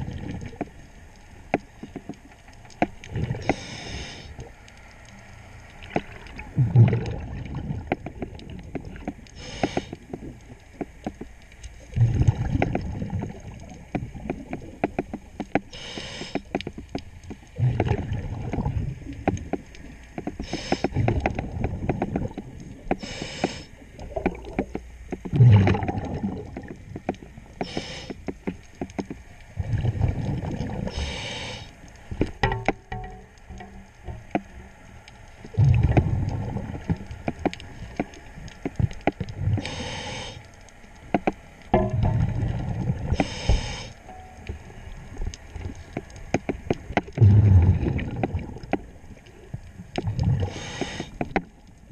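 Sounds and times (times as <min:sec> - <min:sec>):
diver breathing through regulator: 0:03.4 - 0:04.4, 0:09.4 - 0:10.0, 0:15.7 - 0:16.5, 0:20.4 - 0:21.0, 0:22.9 - 0:23.8, 0:27.6 - 0:28.3, 0:30.7 - 0:31.8, 0:39.4 - 0:40.5, 0:43.0 - 0:44.0, 0:50.4 - 0:51.3
bubbling exhaust: 0:06.5 - 0:10.4, 0:11.9 - 0:14.8, 0:25.3 - 0:28.2, 0:29.6 - 0:31.7, 0:35.4 - 0:37.0, 0:47.1 - 0:48.8.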